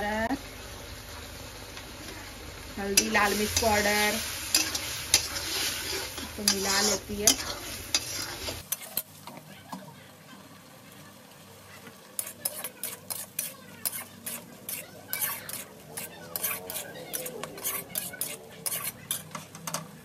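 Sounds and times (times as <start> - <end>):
potatoes sizzling: 0.0 - 20.0
metal spatula scraping pan: 3.0 - 9.1, 12.2 - 19.9
spatula clinking against pan: 4.5 - 8.8, 12.2 - 19.9.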